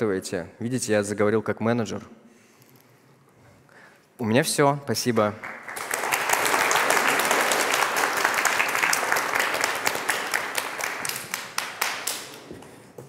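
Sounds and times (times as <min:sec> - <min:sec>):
audience applauding: 0:05.4 - 0:12.6.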